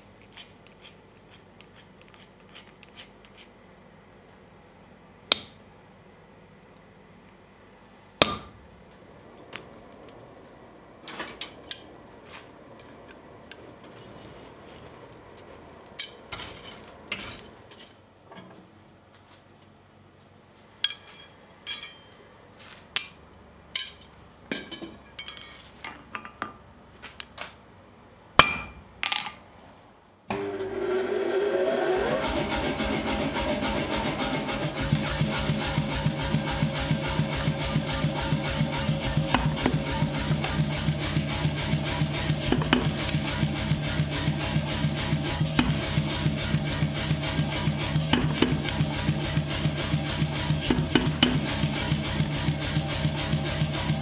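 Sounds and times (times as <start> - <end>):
tool clatter: 20.8 - 22.2, 23.0 - 26.5.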